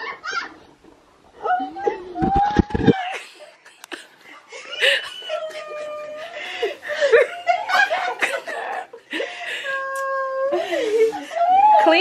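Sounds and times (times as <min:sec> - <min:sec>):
women laughing excitedly: 0:02.8 - 0:12.0.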